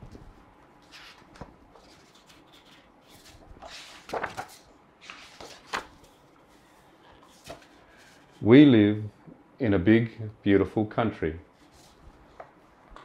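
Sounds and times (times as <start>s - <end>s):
book pages turning: 0.8s - 8.4s.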